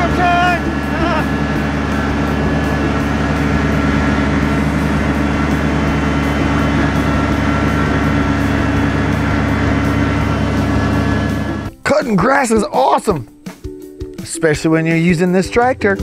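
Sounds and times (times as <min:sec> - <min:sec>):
tractor diesel engine mowing: 0:00.0 - 0:12.4.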